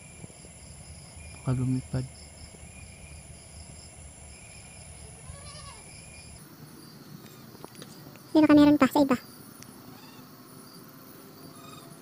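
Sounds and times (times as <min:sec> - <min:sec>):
insects chirping: 0:00.0 - 0:12.0
faint wavering animal call: 0:09.8 - 0:10.3, 0:11.5 - 0:12.0.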